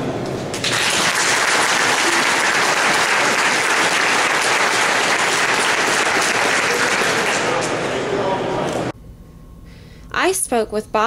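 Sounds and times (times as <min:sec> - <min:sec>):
crowd applauding: 0:00.5 - 0:08.9.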